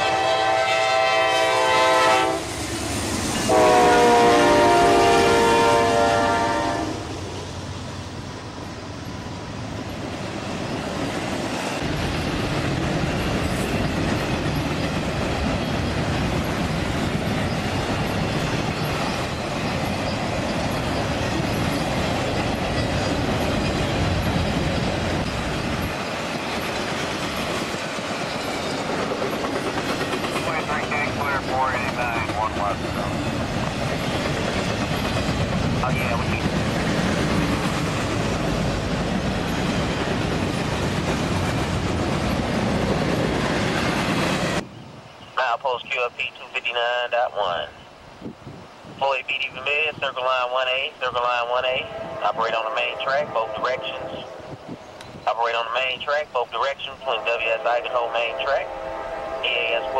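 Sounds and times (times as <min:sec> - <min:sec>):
locomotive horn blasts: 0:00.0 - 0:02.5, 0:03.4 - 0:07.1, 0:51.8 - 0:54.5, 0:57.1 - 0:59.9
train rolling rumble: 0:00.0 - 0:59.9
wheels clacking over rail joints: 0:10.0 - 0:30.5.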